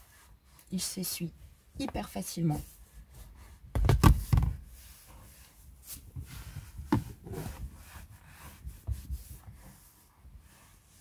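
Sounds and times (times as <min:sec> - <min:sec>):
cloth rubbing on leather: 0:04.6 - 0:11.0.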